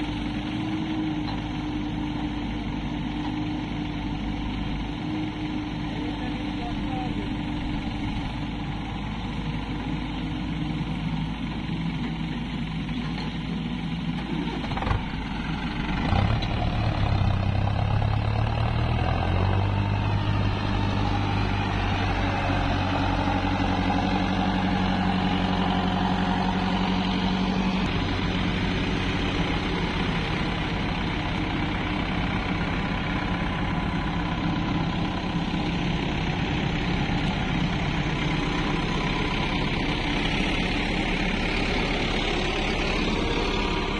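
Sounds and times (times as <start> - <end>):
diesel tractor engines: 0.0 - 43.9
hydraulic excavator running: 0.0 - 43.9
tractor engine under load: 0.0 - 43.9.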